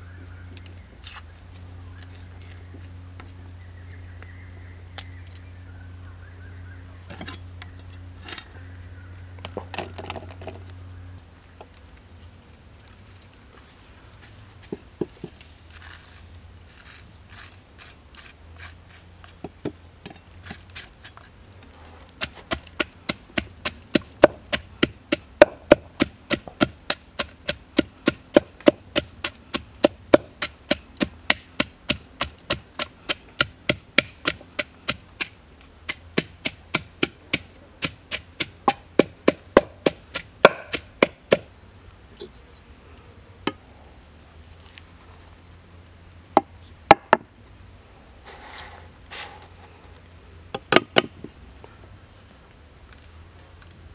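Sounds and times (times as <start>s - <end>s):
wooden pestle pounding in mortar: 35.9s - 41.4s.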